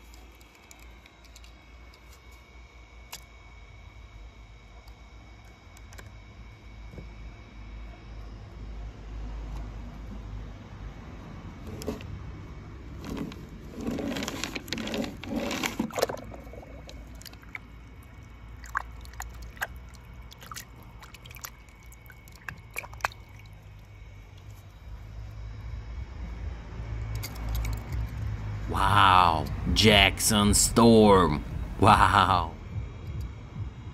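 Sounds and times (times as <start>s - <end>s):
steady low hum: 0.0s - 33.9s
toy cars squishing through paint: 13.3s - 24.8s, 27.2s - 28.2s.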